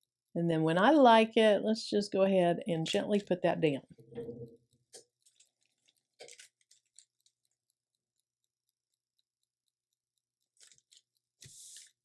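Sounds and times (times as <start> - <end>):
transfer film crinkling: 5.2 - 7.5, 10.6 - 12.0.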